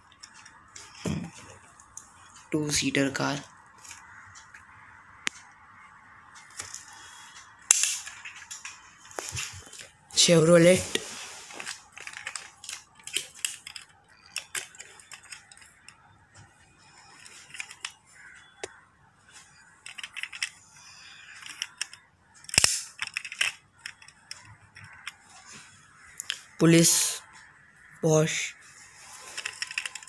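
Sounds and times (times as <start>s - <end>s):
metal toy car clicking: 7.6s - 8.8s, 11.6s - 16.0s, 17.0s - 18.8s, 19.8s - 25.2s, 29.1s - 30.0s.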